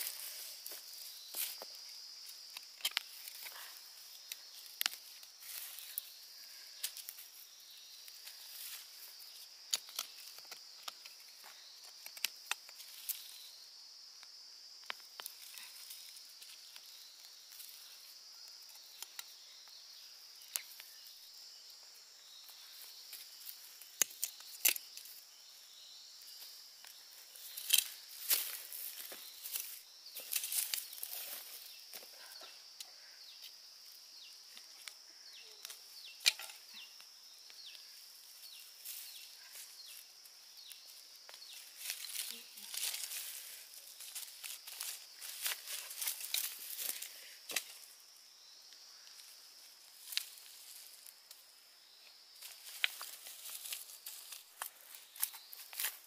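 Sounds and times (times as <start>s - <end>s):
sharp snaps and rustles: 0.0s - 6.1s, 8.1s - 13.4s, 20.4s - 21.0s, 23.0s - 25.2s, 26.4s - 32.2s, 35.6s - 47.9s, 49.9s - 51.4s, 52.4s - 56.0s
insects chirring: 0.0s - 56.0s.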